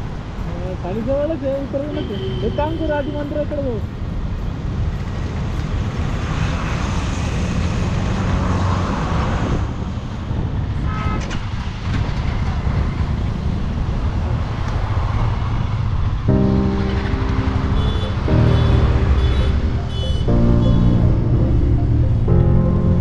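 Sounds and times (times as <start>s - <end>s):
vehicle horn toot: 1.9s - 3.2s, 10.9s - 11.3s, 17.7s - 21.0s
wind rumble on microphone: 4.1s - 16.4s.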